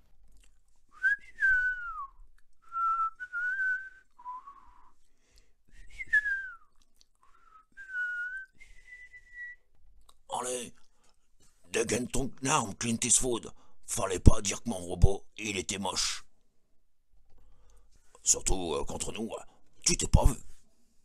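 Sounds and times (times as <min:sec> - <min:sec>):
person whistling a melody: 0:00.9 - 0:05.0, 0:05.7 - 0:09.7.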